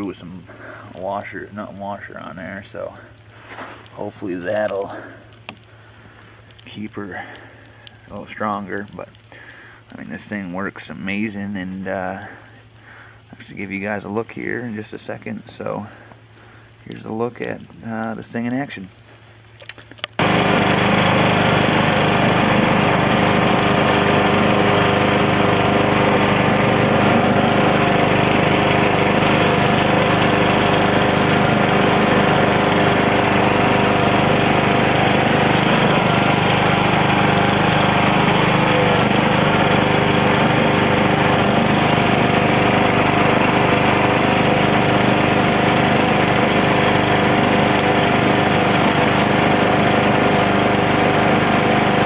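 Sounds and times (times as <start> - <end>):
lawn tractor engine running: 19.6 - 52.0.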